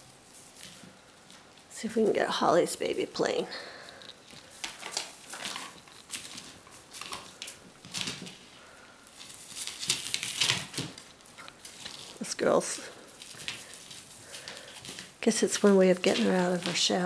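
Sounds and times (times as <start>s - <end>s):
small paws pattering on mat: 0.2s - 1.8s, 3.6s - 17.0s
feathers rustling: 3.9s - 17.0s.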